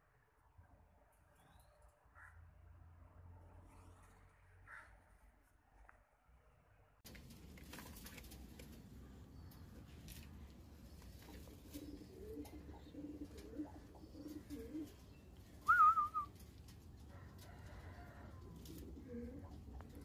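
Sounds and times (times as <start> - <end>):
pigeons cooing: 10.9 - 16.4, 17.4 - 20.0
high wavering whistle-like call: 15.7 - 16.2.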